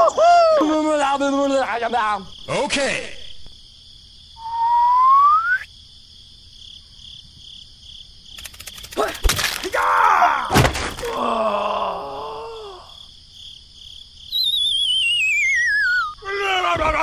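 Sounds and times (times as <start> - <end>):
rising cartoon whistle: 4.4 - 5.7, 14.3 - 16.2
comic groaning voice: 10.1 - 13.0
sharp thunks: 10.5 - 11.2.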